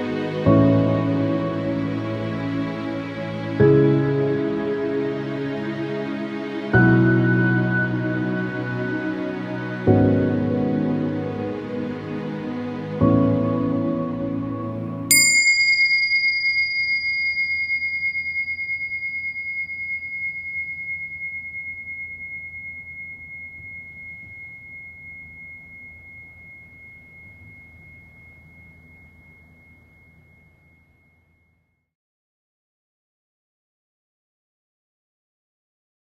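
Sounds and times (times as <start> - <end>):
background music: 0.0 - 15.2
bell ding: 15.1 - 31.5
faint low hum: 16.1 - 31.7.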